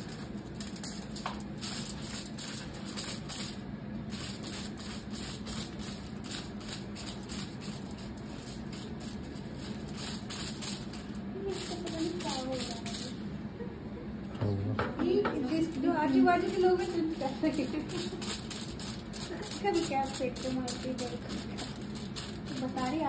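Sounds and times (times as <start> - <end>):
brush swishing on foil: 0.0 - 13.3, 15.5 - 23.0
low room hum: 0.0 - 23.0.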